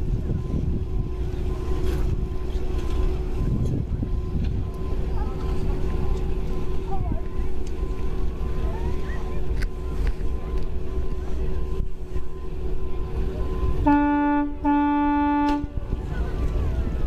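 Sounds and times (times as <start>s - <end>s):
vehicle horn blasts: 13.8s - 15.8s.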